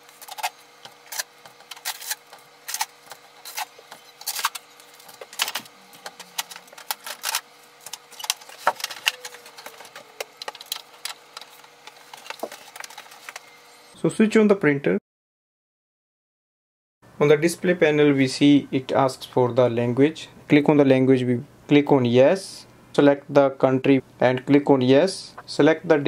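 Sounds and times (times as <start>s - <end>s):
tape peeling off plastic: 0.1s - 13.5s.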